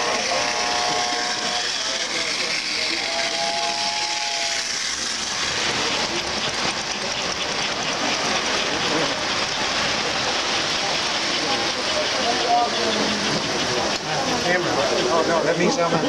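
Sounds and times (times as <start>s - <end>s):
two-tone train whistle: 0.0s - 5.1s
train cars clattering on track: 0.0s - 16.0s.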